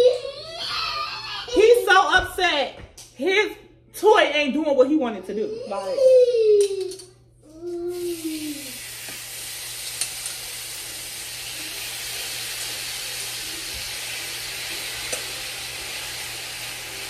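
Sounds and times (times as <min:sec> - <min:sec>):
meat sizzling in a frying pan: 0:07.9 - 0:17.0.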